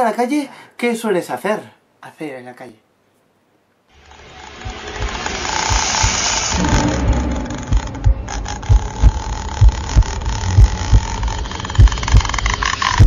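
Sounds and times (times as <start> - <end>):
steady hiss with thin tone: 0.0 - 6.6
thudding heartbeat: 6.0 - 11.1.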